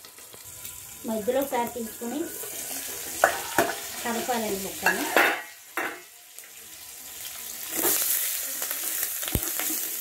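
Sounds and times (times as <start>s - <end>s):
fish roe sizzling in hot oil: 0.0s - 10.0s
steel ladle scraping a pan: 2.0s - 6.0s.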